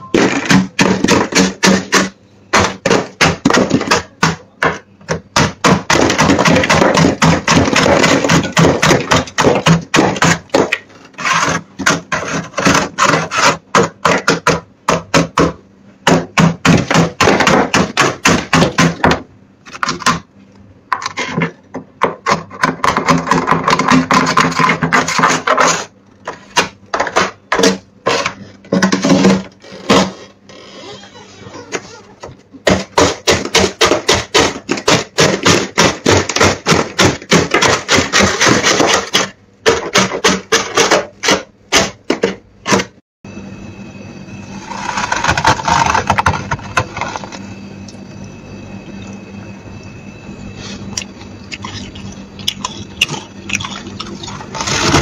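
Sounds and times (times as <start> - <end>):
frost scraped off freezer walls: 5.6 - 14.4, 22.3 - 26.7, 44.4 - 47.4, 51.6 - 55.0.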